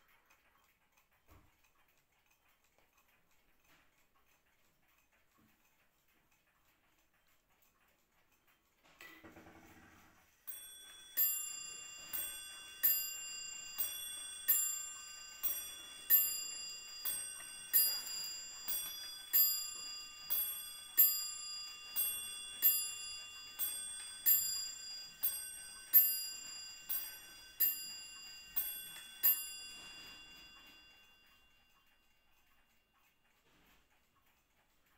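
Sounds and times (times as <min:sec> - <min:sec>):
clock striking ding-dong chime: 0:10.4 - 0:32.2
clock strike mechanism whirring: 0:10.4 - 0:33.4.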